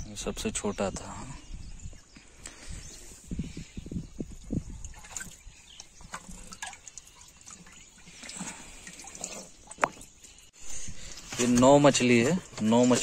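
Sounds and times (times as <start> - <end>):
water sloshing in a plastic drum: 3.4 - 13.0
small splashes: 4.8 - 10.8.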